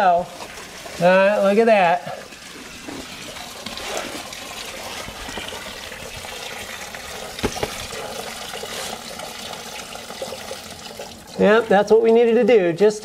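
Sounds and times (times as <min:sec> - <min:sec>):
liquid pouring into a bucket: 0:00.0 - 0:12.6
knock: 0:07.4 - 0:07.8.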